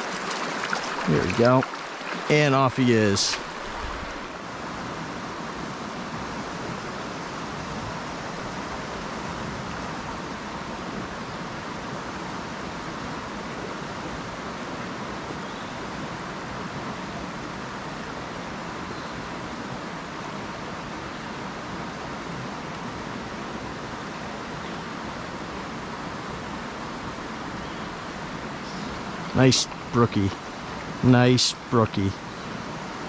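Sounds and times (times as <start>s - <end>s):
river water rushing over rocks: 0.0s - 33.0s.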